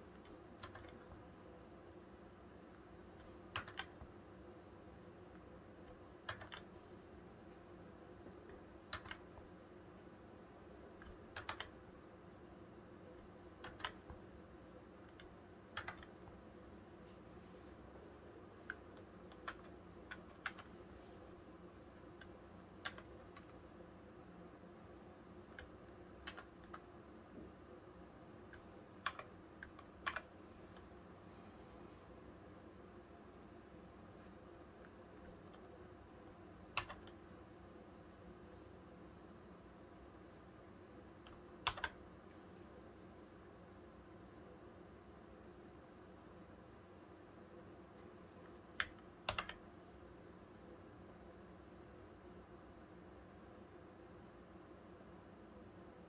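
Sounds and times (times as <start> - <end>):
keyboard key clicks: 8.9 - 9.4, 36.8 - 37.2, 41.3 - 42.0.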